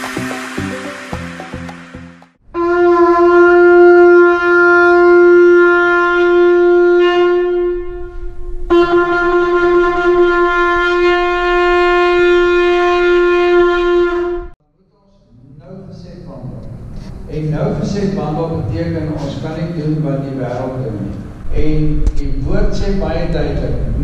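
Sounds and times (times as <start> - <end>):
shofar blasts: 0.0 - 14.6.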